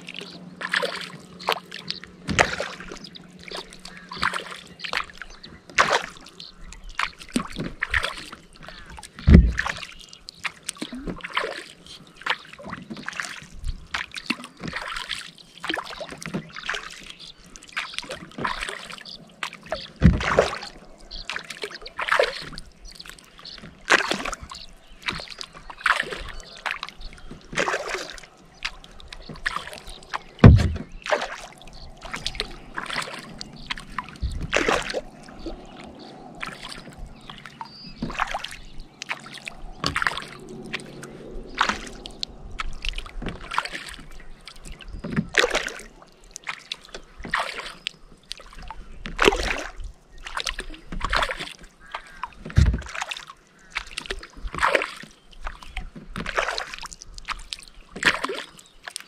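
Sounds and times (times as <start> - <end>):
paddle splashing in water: 0.0 - 59.0
paddle thumps: 9.2 - 9.8, 20.0 - 20.5, 30.4 - 31.4, 52.4 - 53.0.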